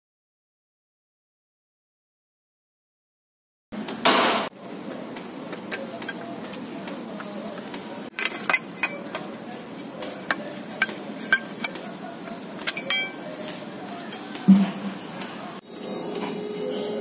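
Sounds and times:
steady background noise: 3.8s - 17.0s
metal tools clicking and clinking: 8.1s - 9.4s, 10.0s - 13.2s.

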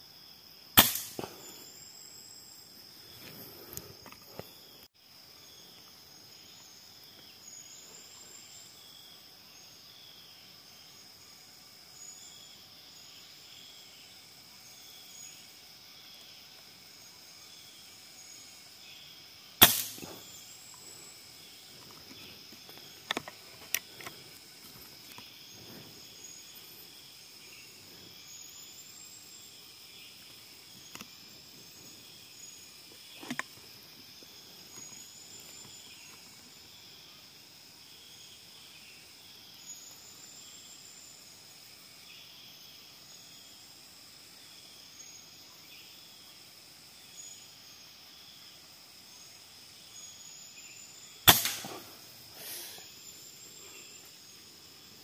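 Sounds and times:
insect drone: 0.0s - 55.0s
air rifle shot: 0.8s - 1.4s, 19.6s - 20.3s, 51.3s - 52.0s.

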